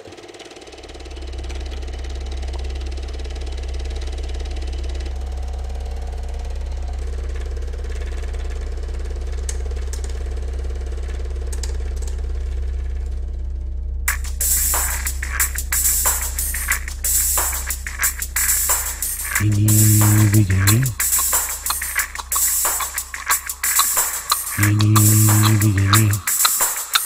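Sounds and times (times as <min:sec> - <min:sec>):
low hum: 0:19.4 - 0:26.2.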